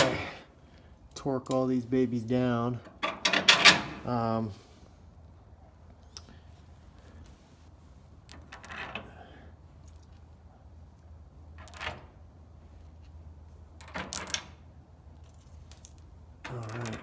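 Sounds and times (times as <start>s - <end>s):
metal tools clinking and rattling: 15.1s - 17.0s.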